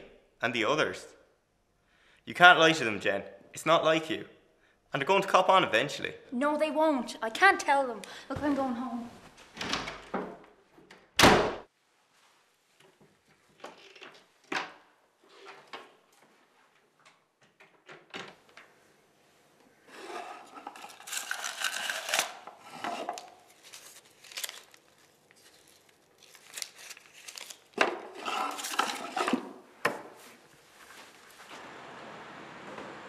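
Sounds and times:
banknotes rustling: 20.7 - 29.5.

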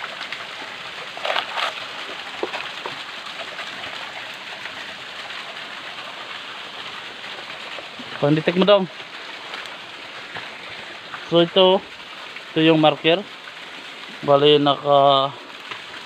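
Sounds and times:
running water hissing: 0.0 - 16.0.

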